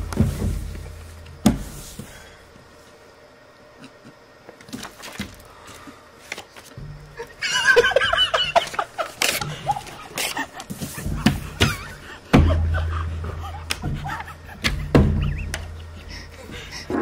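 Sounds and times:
knocks and thuds: 0.0 - 1.8, 10.9 - 16.0.

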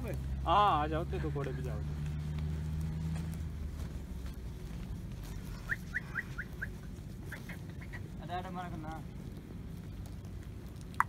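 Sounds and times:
bird chirping: 5.3 - 8.2.

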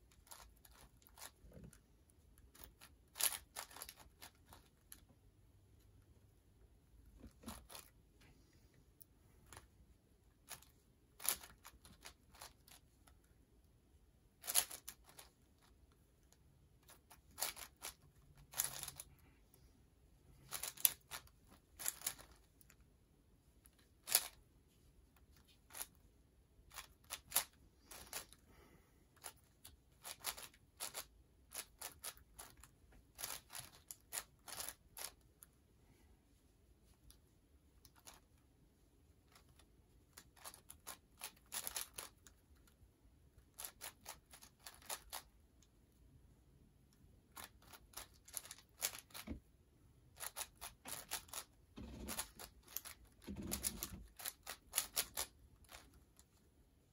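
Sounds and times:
plastic puzzle pieces clacking: 14.4 - 15.7, 16.8 - 19.1, 20.5 - 22.7, 24.0 - 24.4, 30.0 - 35.2, 39.3 - 42.7, 43.5 - 45.3, 47.4 - 49.4, 50.2 - 56.0.

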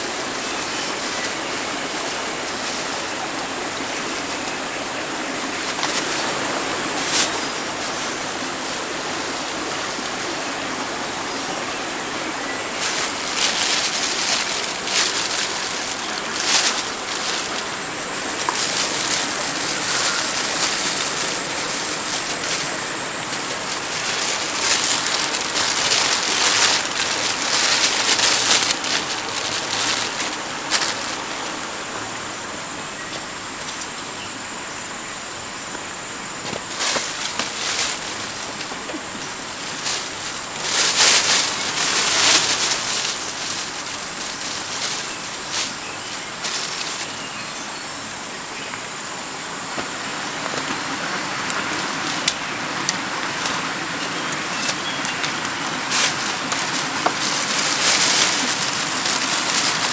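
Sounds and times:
steady background hiss: 0.0 - 59.9
plastic bag crinkling: 5.2 - 31.7, 36.4 - 47.3, 50.5 - 59.9.

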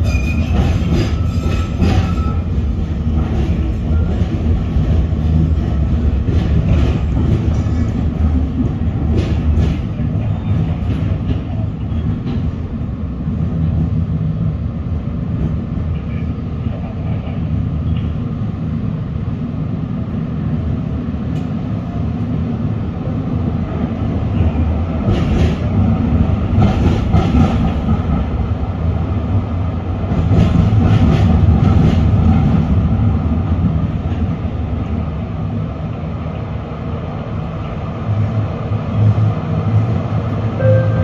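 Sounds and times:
train wheels rumbling: 0.0 - 41.0.

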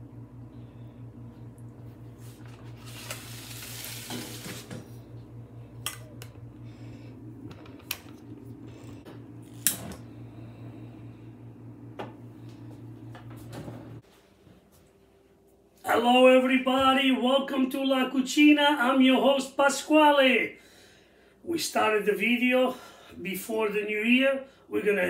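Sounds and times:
steady low hum: 0.0 - 17.3.

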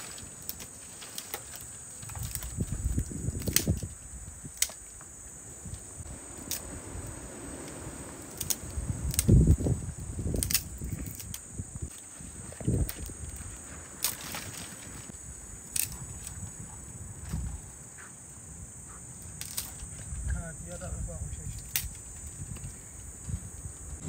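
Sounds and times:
low thumps and rustling: 0.0 - 15.2
insect chorus: 0.0 - 24.0.

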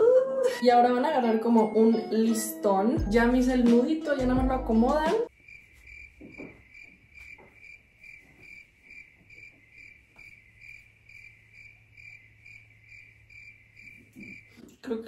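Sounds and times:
cricket chirping: 5.3 - 14.6.

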